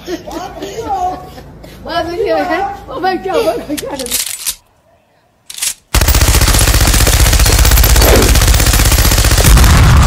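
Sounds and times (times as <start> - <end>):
rapid automatic gunfire: 5.9 - 10.0.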